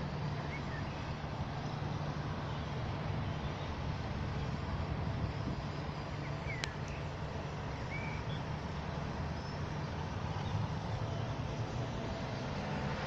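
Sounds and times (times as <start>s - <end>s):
distant traffic rumble: 0.0s - 13.0s
faint bird chirps: 7.7s - 8.5s.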